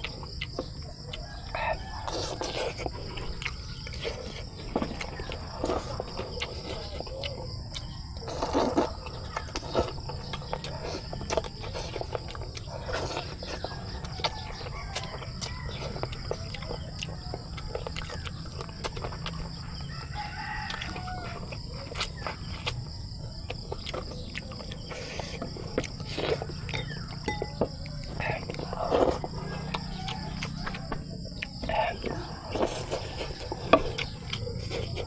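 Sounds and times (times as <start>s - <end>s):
chewing and lip smacks: 0.0s - 35.0s
rooster crowing: 1.0s - 2.9s, 5.0s - 24.9s, 25.5s - 35.0s.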